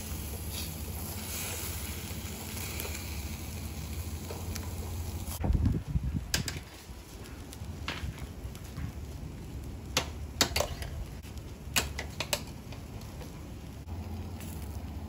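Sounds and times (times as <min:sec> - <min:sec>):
skewers clicking on grill: 0:00.0 - 0:05.4, 0:06.2 - 0:15.0
low steady rumble: 0:00.0 - 0:06.4, 0:12.5 - 0:15.0.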